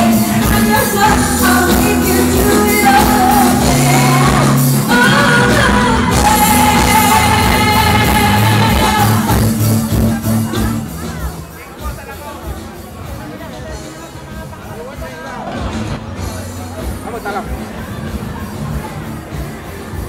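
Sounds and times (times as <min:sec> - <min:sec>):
pop music with singing: 0:00.0 - 0:11.6
held bass notes: 0:00.0 - 0:11.8.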